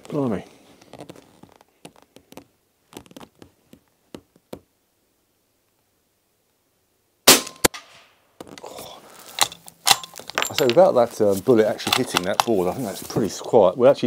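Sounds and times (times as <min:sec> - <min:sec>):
bullet striking target: 0:07.3 - 0:08.1
muted gunshot: 0:07.3 - 0:08.1
metallic bolt clatter: 0:09.3 - 0:11.0, 0:11.6 - 0:12.8.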